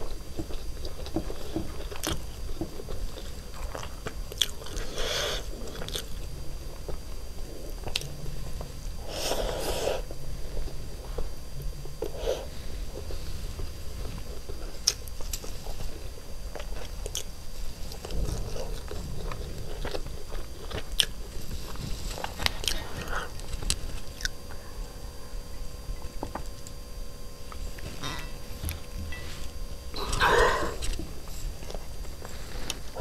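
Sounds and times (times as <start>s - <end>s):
close-miked chewing: 0.0s - 8.7s, 12.0s - 26.8s.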